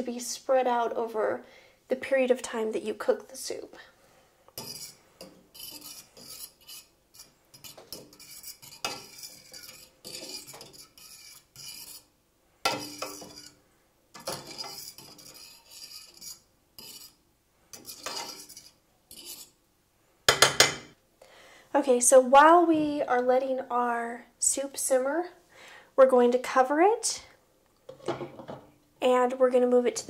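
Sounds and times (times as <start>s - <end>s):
spoon scraping metal pot: 4.5s - 19.6s.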